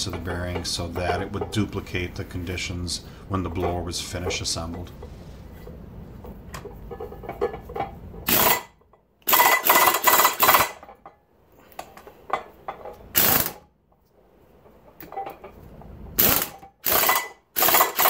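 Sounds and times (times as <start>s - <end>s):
impact wrench rattling: 6.2s - 11.2s, 11.9s - 13.6s, 16.2s - 18.0s
metal parts clicking: 8.3s - 10.9s, 16.2s - 18.0s.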